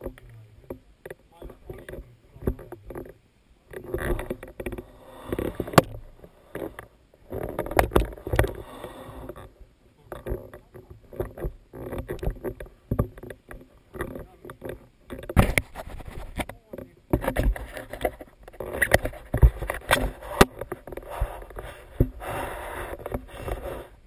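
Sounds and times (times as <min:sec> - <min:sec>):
sharp knocks and rattles: 0:00.0 - 0:22.2
plastic wheels scraping on asphalt: 0:13.4 - 0:16.6, 0:17.2 - 0:24.0.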